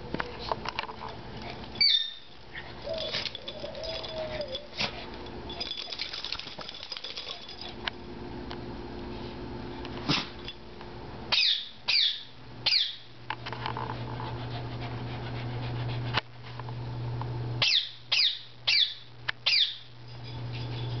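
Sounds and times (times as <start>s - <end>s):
dogs yipping: 1.4s - 5.7s.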